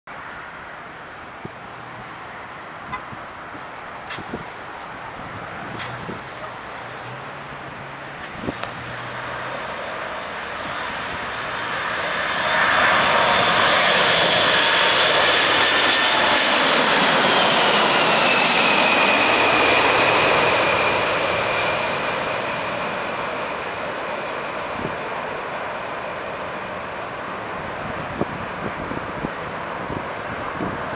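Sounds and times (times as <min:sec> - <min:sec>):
jet engines roaring and whining: 0:00.1 - 0:30.9.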